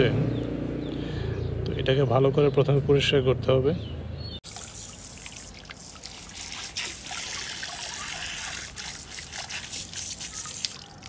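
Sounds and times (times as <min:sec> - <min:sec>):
water trickling and splashing: 0:04.4 - 0:11.0.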